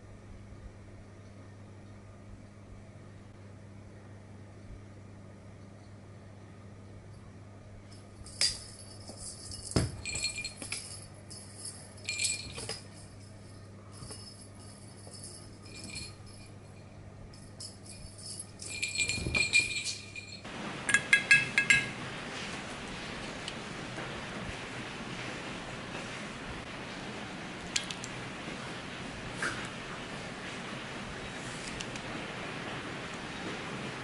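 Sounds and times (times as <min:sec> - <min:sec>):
cat collar bell jingling: 0:07.9 - 0:21.9
spoon clinking ceramic bowl: 0:18.7 - 0:22.0.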